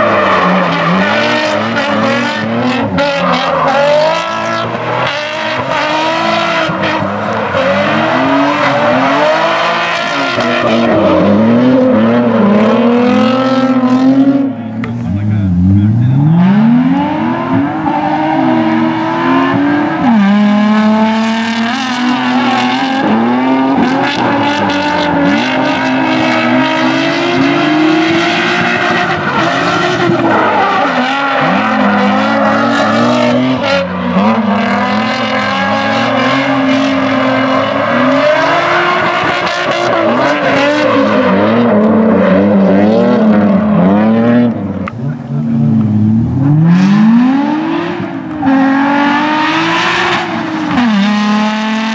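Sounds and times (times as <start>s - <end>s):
tire squeal: 0.0s - 13.2s, 21.8s - 42.6s
car engines revving: 0.0s - 51.9s.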